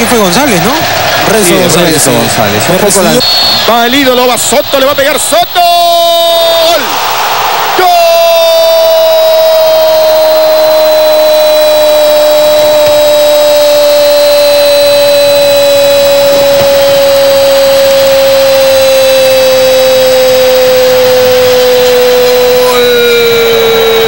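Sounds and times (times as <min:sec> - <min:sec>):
commentator shouting goal cry: 0:07.7 - 0:10.1.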